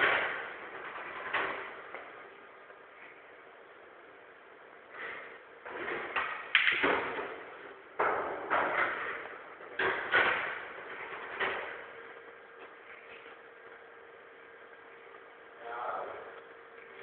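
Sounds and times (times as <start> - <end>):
pool balls clacking: 0.0 - 2.8, 5.0 - 13.9.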